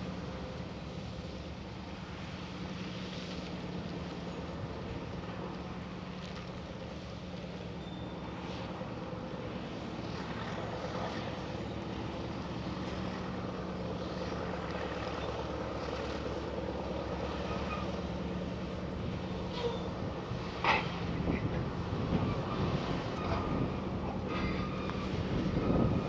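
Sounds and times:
dragline machinery pulsing: 3.3s - 26.0s.

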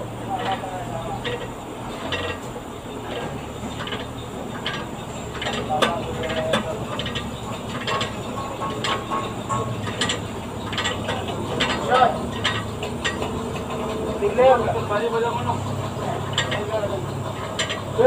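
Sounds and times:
low steady hum: 0.0s - 18.0s
hand tools clinking against metal: 0.3s - 18.0s.

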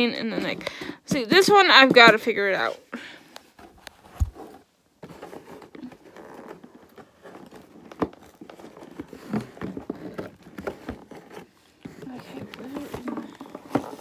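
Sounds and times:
packaging rustling and crinkling: 3.5s - 14.0s.

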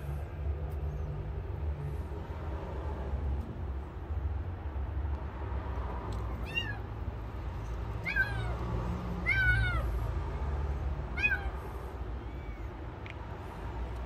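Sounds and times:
kitten meowing: 6.4s - 6.9s, 8.0s - 8.6s, 9.2s - 9.9s, 11.1s - 11.6s, 12.2s - 12.8s.

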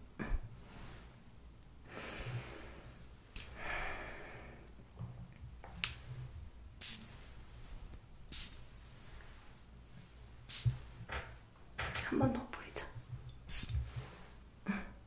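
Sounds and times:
spray bottle hissing: 6.8s - 7.1s, 8.3s - 8.7s, 10.5s - 10.8s, 13.5s - 13.9s.

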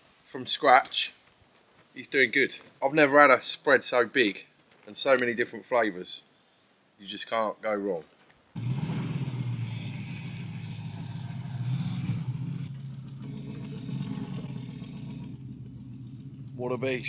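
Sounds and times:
car engine driving off: 8.6s - 17.0s.

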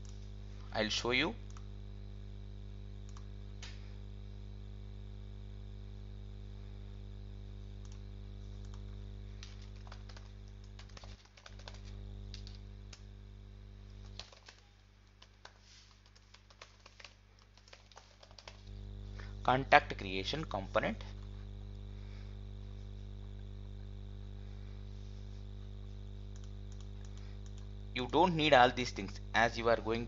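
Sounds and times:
low electrical hum: 0.0s - 30.0s
typing on a computer keyboard: 8.6s - 13.0s, 14.0s - 18.6s.

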